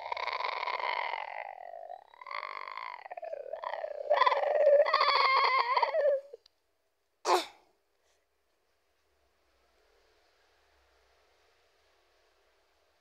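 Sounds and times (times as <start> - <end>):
high-pitched voice humming: 0.0 - 6.4.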